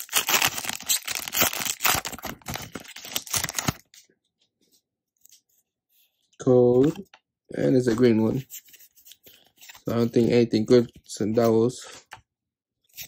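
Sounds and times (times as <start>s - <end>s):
foil wrapper crinkling and tearing: 0.0s - 3.9s.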